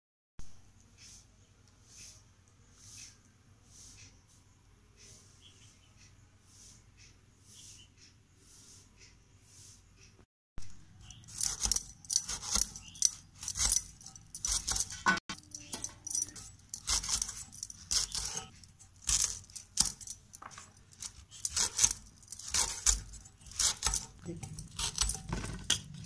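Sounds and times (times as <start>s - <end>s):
gourd slicing strokes: 10.9s - 26.0s
slices clinking on steel plate: 11.1s - 26.0s.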